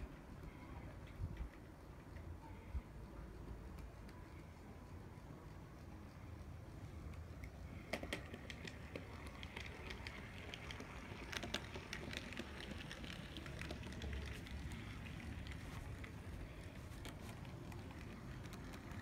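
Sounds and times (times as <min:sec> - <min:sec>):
low steady hum: 0:00.0 - 0:19.0
model train wheels clicking: 0:00.0 - 0:19.0.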